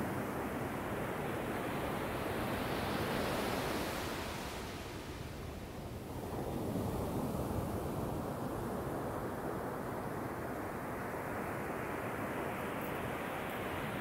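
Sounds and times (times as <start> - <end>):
waves washing up a sandy beach: 0.0 - 14.0.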